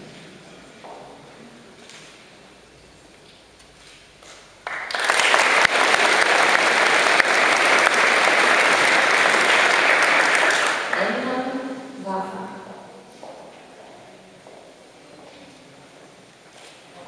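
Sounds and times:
audience applauding: 0:04.6 - 0:11.5.

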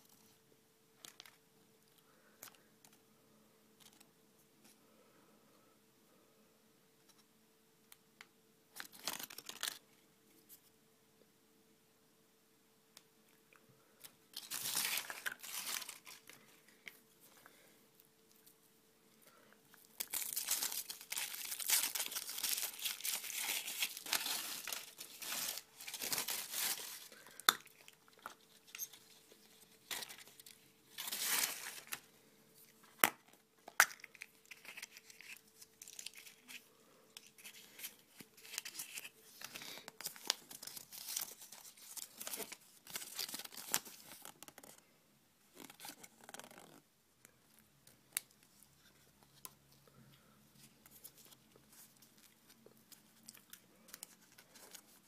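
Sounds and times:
packaging crinkling and tearing: 0:08.8 - 0:09.8, 0:14.3 - 0:16.4, 0:19.8 - 0:32.1, 0:33.0 - 0:36.6, 0:37.2 - 0:44.8.

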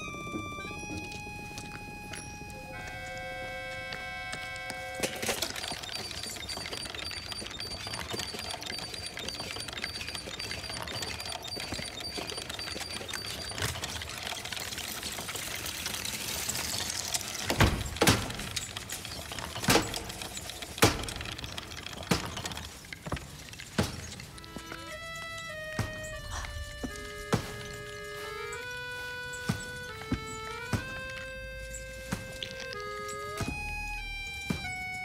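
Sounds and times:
toy tricycle rolling on tiles: 0:00.0 - 0:35.0
sharp knocks and clicks: 0:03.9 - 0:15.5, 0:17.0 - 0:28.0.

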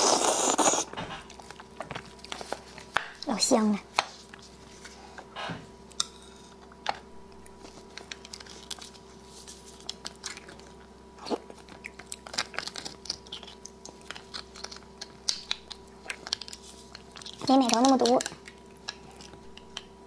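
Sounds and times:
wet chewing and mouth smacks: 0:09.7 - 0:19.9.

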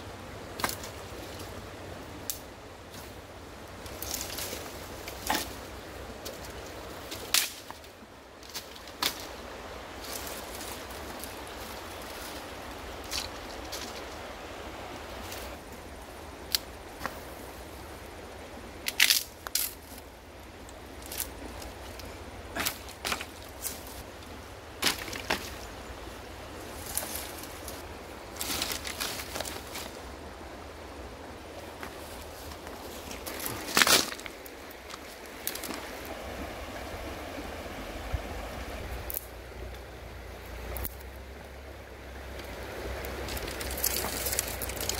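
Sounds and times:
sticks snapping: 0:02.2 - 0:03.0, 0:06.2 - 0:09.3, 0:16.4 - 0:17.2, 0:18.8 - 0:20.0, 0:20.7 - 0:23.8, 0:24.8 - 0:25.6, 0:33.2 - 0:35.9, 0:39.1 - 0:39.3, 0:40.7 - 0:41.1, 0:43.2 - 0:44.9
sticks clattering onto pile: 0:06.2 - 0:09.4, 0:22.5 - 0:23.8, 0:24.8 - 0:25.7, 0:33.1 - 0:35.9, 0:43.2 - 0:44.9.

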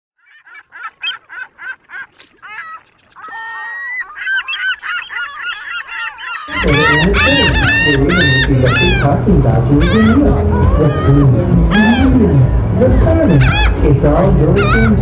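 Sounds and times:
gulls calling: 0:00.2 - 0:15.0
loud low rumble: 0:06.6 - 0:14.9.

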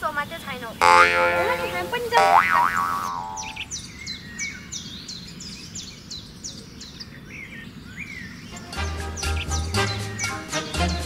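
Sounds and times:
bird chirping: 0:00.8 - 0:10.5.

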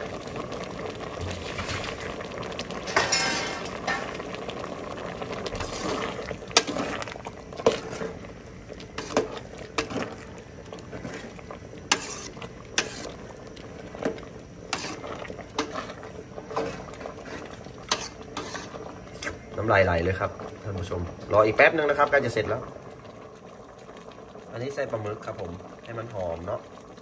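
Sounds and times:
curry boiling in pot: 0:00.0 - 0:27.0
ladle scraping metal pot: 0:05.5 - 0:08.2, 0:08.9 - 0:10.2, 0:10.9 - 0:13.3, 0:14.0 - 0:19.4.

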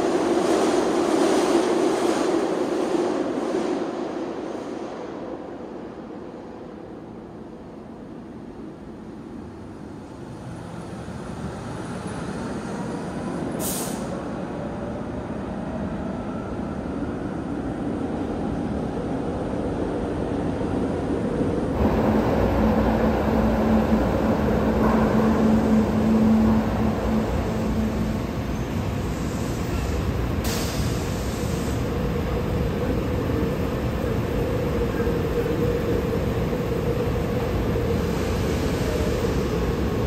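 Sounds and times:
brief hiss: 0:13.6 - 0:14.2
low hum of trolley: 0:20.9 - 0:40.0
trolley rumbling on rails: 0:21.4 - 0:40.0.

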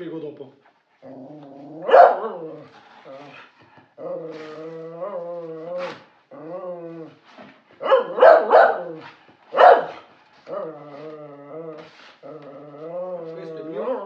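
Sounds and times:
dog barking: 0:01.8 - 0:02.5, 0:07.8 - 0:10.1.

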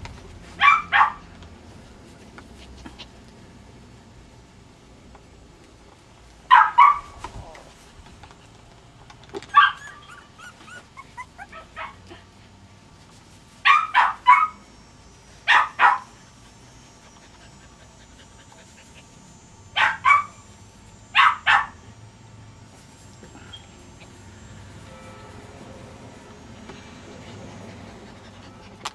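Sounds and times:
dog barking: 0:00.6 - 0:01.2, 0:06.5 - 0:07.2, 0:13.7 - 0:14.6, 0:15.5 - 0:16.1, 0:19.8 - 0:20.4, 0:21.2 - 0:21.8
small dog whining and yipping: 0:09.5 - 0:12.0.

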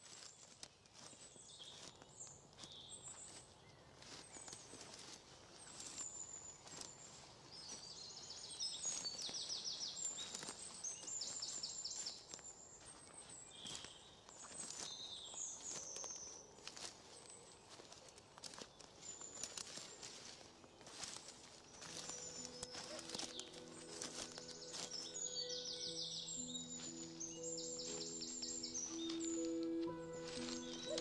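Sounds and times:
footsteps on dry leaves: 0:00.0 - 0:31.0
small birds chirping: 0:00.0 - 0:31.0
bird trills: 0:21.7 - 0:31.0.

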